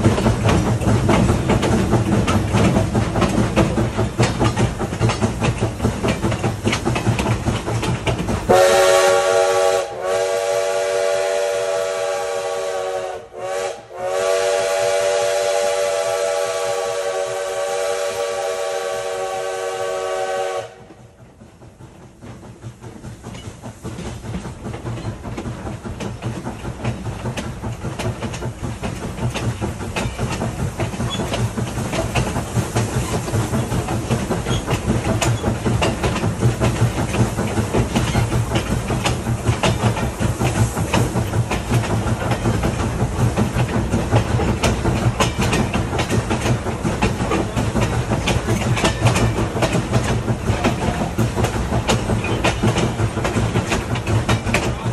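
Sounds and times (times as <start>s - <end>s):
wheels clattering over rail joints: 0.0s - 9.0s, 21.2s - 54.9s
steam locomotive hauling train: 0.0s - 54.9s.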